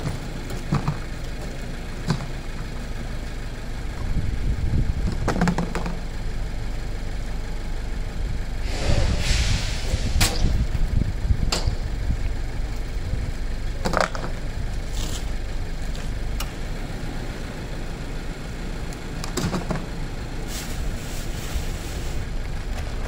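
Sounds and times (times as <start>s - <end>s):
low rumble: 1.3s - 17.9s.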